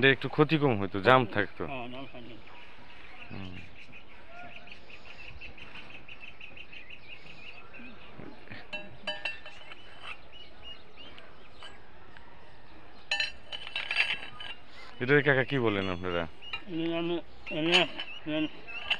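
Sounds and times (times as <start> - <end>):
steel hand tools clinking: 13.1 - 14.7.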